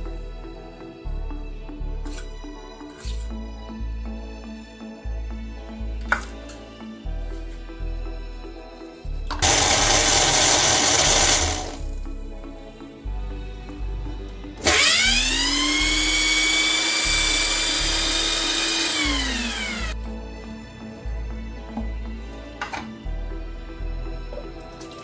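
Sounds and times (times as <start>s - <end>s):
blender motor whirring: 9.3s - 11.8s, 14.6s - 20.0s.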